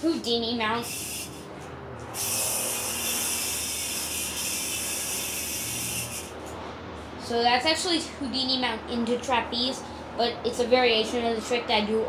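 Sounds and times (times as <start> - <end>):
yo-yo whirring: 0.3 - 6.6.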